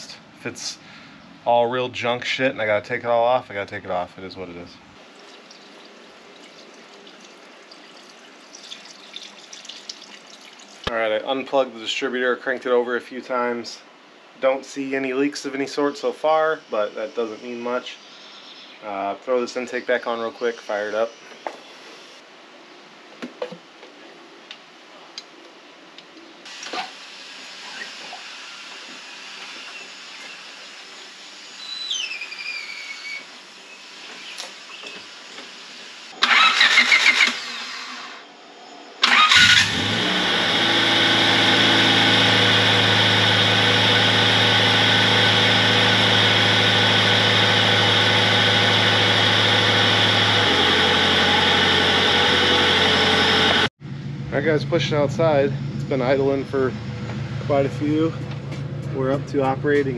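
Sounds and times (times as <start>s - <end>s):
car engine cranking: 36.2s - 37.8s, 39.0s - 53.7s
car engine idling: 39.2s - 59.9s.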